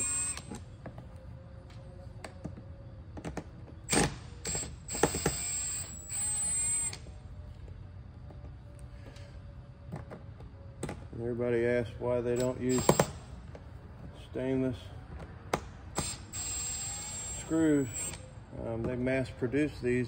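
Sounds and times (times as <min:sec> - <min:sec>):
cordless drill whining: 0:00.0 - 0:00.6, 0:03.9 - 0:07.1, 0:12.4 - 0:13.2, 0:16.0 - 0:18.2.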